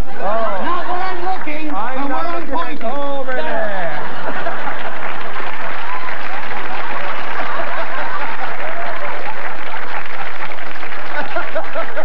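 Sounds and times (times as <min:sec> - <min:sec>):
audience laughing: 0:00.0 - 0:01.4, 0:03.4 - 0:12.0
audience clapping: 0:00.7 - 0:03.0, 0:04.0 - 0:12.0.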